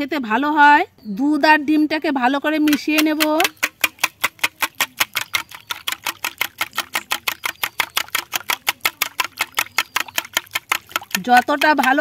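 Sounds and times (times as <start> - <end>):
whisk clicking against glass bowl: 2.7 - 12.0.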